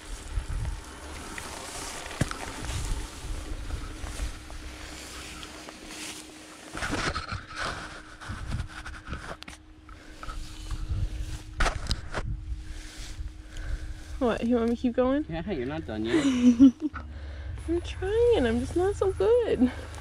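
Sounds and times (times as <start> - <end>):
wind rumble on microphone: 0.0 - 5.6, 6.8 - 20.0
electric motor hum: 0.0 - 20.0.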